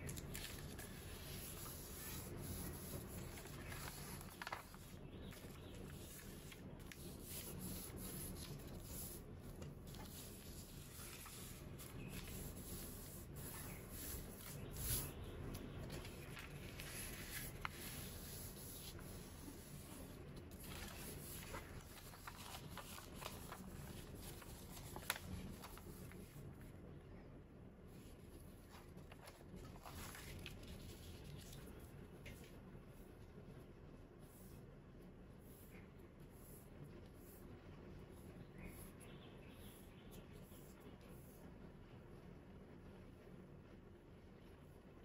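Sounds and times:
paper crackles: 0:00.0 - 0:26.7, 0:28.0 - 0:32.6
paper rustling and creasing: 0:00.0 - 0:26.7, 0:28.0 - 0:32.5.

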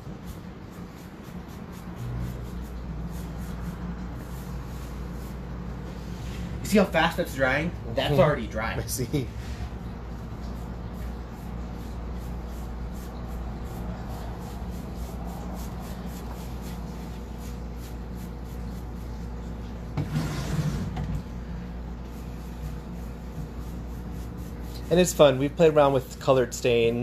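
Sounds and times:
low room hum: 0:00.0 - 0:27.0
rustling scrape: 0:01.4 - 0:06.7, 0:20.0 - 0:21.2.

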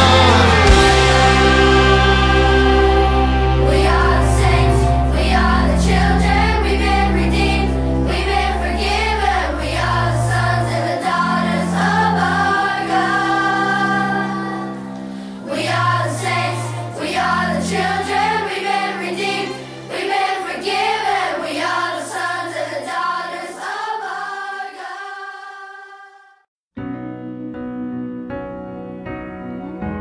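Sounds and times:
sustained instrumental backing: 0:00.0 - 0:21.6
choir singing praise song: 0:00.0 - 0:26.5.

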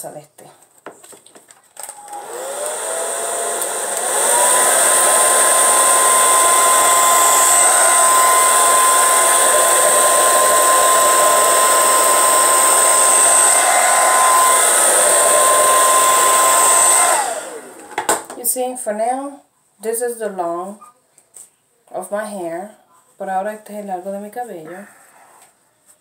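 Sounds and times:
hair dryer motor whine: 0:01.9 - 0:18.2.

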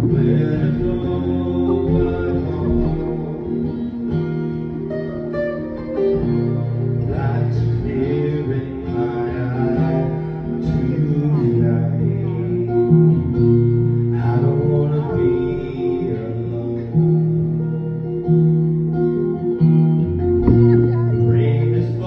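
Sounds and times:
person singing: 0:00.0 - 0:04.1, 0:07.0 - 0:13.3, 0:14.1 - 0:17.2, 0:20.4 - 0:22.0
low bass line: 0:00.0 - 0:18.3, 0:20.0 - 0:22.0
acoustic guitar music: 0:00.0 - 0:22.0.

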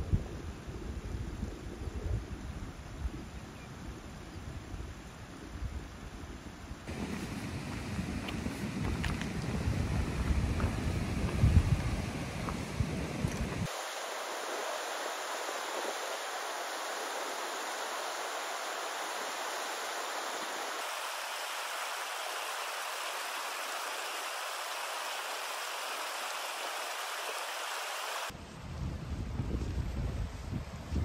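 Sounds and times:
wind gusting on microphone: 0:00.0 - 0:20.9, 0:28.2 - 0:31.0
stream rushing over rocks: 0:06.9 - 0:28.3.

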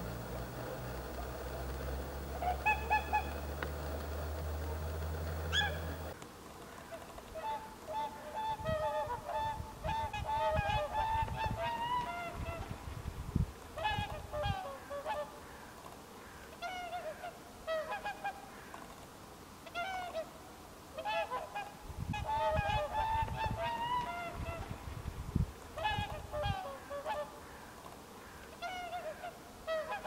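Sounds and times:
swans honking: 0:00.0 - 0:06.2.

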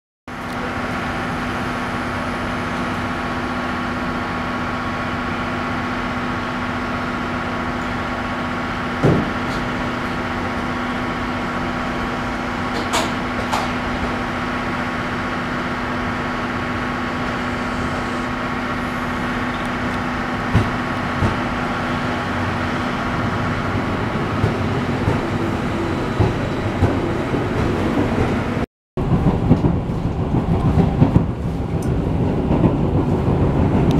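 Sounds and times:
electric train rumbling: 0:00.3 - 0:33.9
train wheels clicking: 0:19.1 - 0:33.9.

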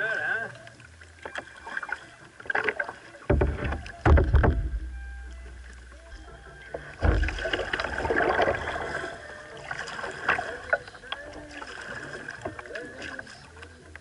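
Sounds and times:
water splashing and dripping: 0:00.0 - 0:14.0
knocks on plastic kayak hull: 0:03.3 - 0:04.9.

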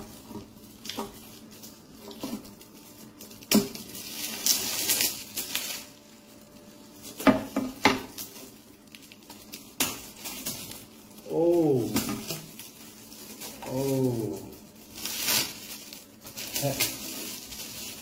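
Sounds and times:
foil gift wrap crinkling and tearing: 0:00.0 - 0:18.0.

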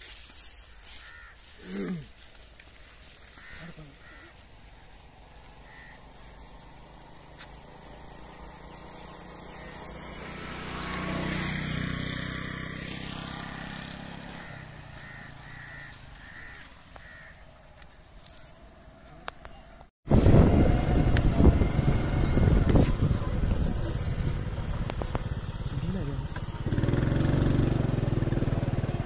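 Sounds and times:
bird calling: 0:00.6 - 0:02.2, 0:03.2 - 0:10.2, 0:14.1 - 0:19.7, 0:26.1 - 0:26.7
vehicle driving past: 0:05.0 - 0:16.6, 0:20.2 - 0:23.5, 0:24.5 - 0:29.0.

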